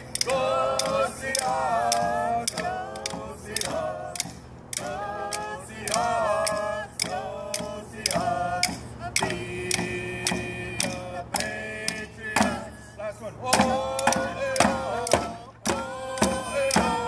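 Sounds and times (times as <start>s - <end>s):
group singing in unison: 0.0s - 17.0s
hand drums beating: 13.5s - 17.0s.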